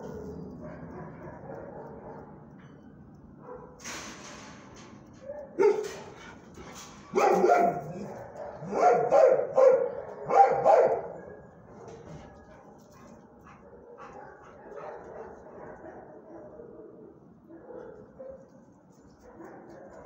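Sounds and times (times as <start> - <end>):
dog barking: 0.0 - 2.4, 3.4 - 3.8, 5.3 - 6.0, 7.1 - 18.6, 19.2 - 20.0.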